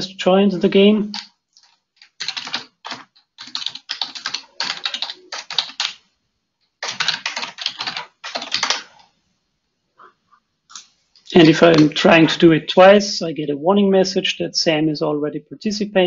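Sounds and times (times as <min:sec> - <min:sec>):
typing on computer keyboard: 0:01.1 - 0:06.0, 0:06.8 - 0:09.0.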